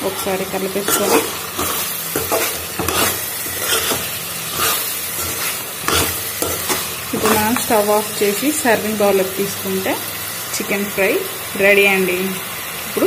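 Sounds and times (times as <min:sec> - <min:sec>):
spoon scraping and knocking pan: 0:00.0 - 0:08.2
food sizzling in a metal pan: 0:00.0 - 0:13.0.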